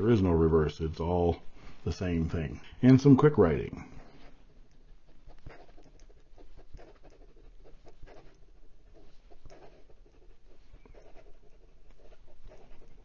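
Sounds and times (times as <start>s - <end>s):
pen nib scratching on paper: 4.0s - 13.0s
small clicks inside pen: 5.4s - 7.3s.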